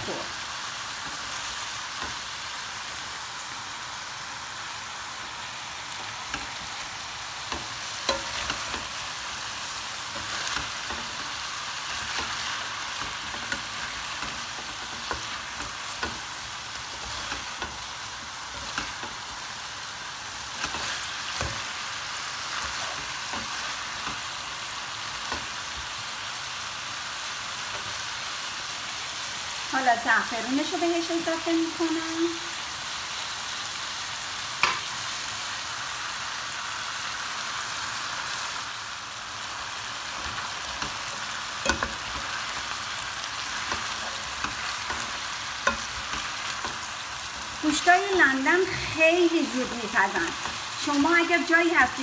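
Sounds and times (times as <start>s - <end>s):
meat and cabbage sizzling in pot: 0.0s - 52.0s
spatula scraping pan: 7.4s - 9.2s, 20.3s - 24.6s, 40.0s - 47.9s.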